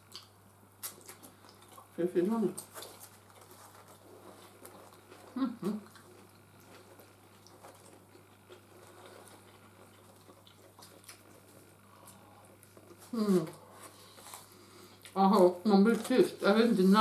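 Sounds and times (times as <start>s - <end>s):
chewing food: 0.0s - 16.5s.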